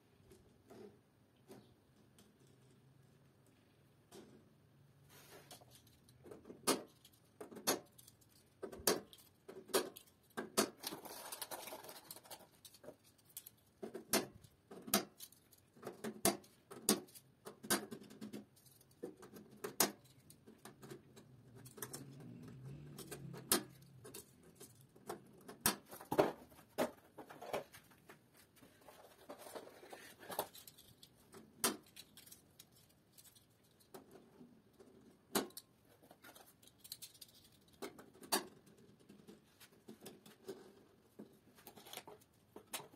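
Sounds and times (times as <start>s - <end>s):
plastic blocks snapping clicks: 6.2s - 18.4s, 19.0s - 22.2s.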